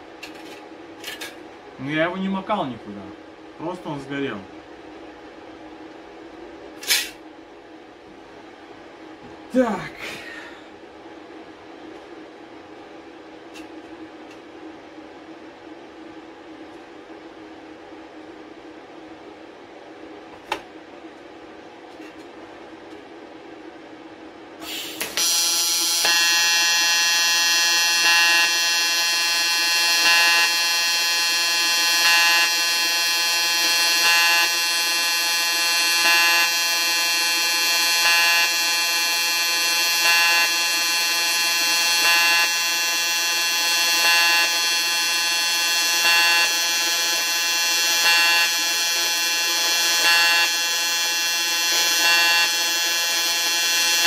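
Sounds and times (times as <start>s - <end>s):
welding arc buzzing: 24.6s - 54.0s.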